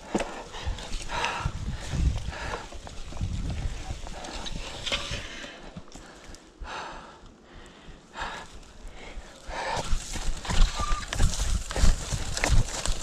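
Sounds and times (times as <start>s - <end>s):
bike rattling over bumps: 0.0s - 6.2s, 9.5s - 13.0s
bike tyres crunching leaves: 0.0s - 6.4s, 8.6s - 13.0s.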